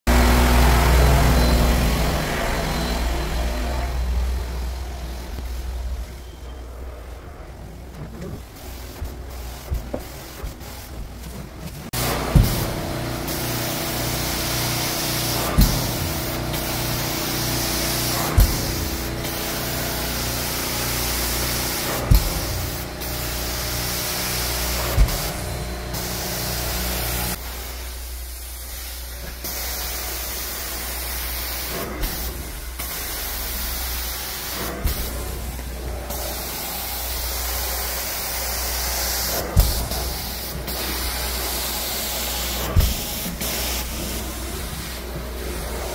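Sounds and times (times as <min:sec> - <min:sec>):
low machine hum: 0:00.1 - 0:27.4
carpet cleaning wand sucking and spraying: 0:08.3 - 0:27.6, 0:28.4 - 0:45.9.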